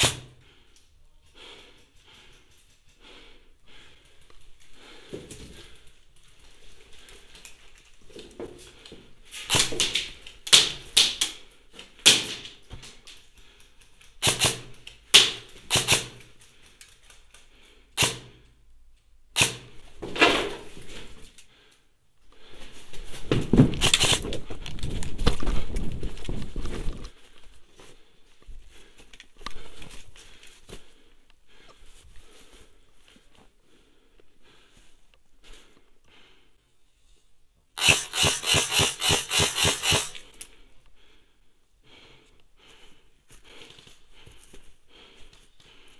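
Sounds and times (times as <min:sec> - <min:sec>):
airsoft rifle shots: 0:00.0 - 0:00.3, 0:09.5 - 0:11.2, 0:14.2 - 0:16.2, 0:18.0 - 0:18.3, 0:19.4 - 0:19.8, 0:23.8 - 0:24.2, 0:37.8 - 0:40.2
camera handling noise: 0:23.8 - 0:24.5.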